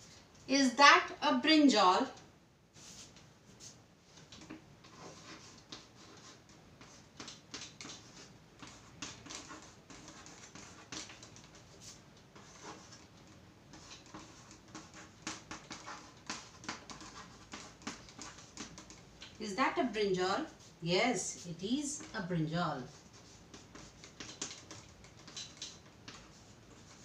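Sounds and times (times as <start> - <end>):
chalk scratching on chalkboard: 4.8 - 13.1, 13.7 - 19.0, 20.4 - 27.0.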